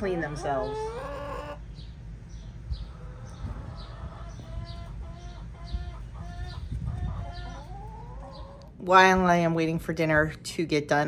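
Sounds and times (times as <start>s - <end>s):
hens clucking: 0.0s - 8.8s.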